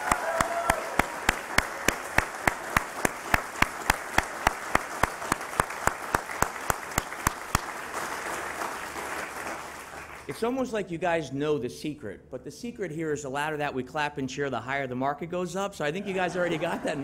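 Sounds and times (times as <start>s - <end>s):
sharp close hand claps: 0.0s - 10.3s
crowd applauding: 0.0s - 10.4s.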